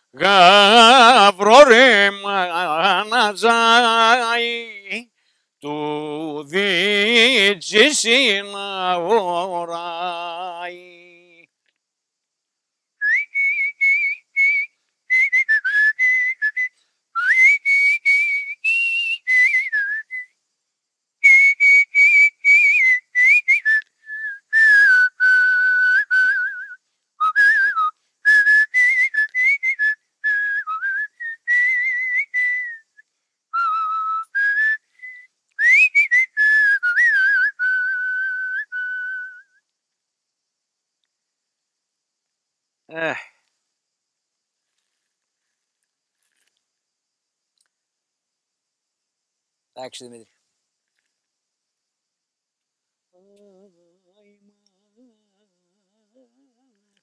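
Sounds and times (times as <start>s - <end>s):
man whistling a melody: 13.0s - 20.4s, 21.2s - 39.7s.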